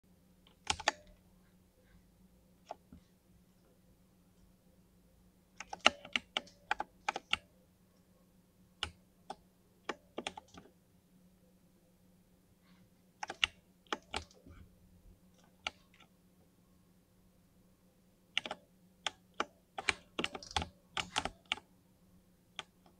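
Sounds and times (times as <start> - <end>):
faint low hum: 0.0 - 22.9
mechanical keyboard clacking: 0.5 - 1.1, 5.6 - 7.4, 9.9 - 10.6, 18.4 - 21.6.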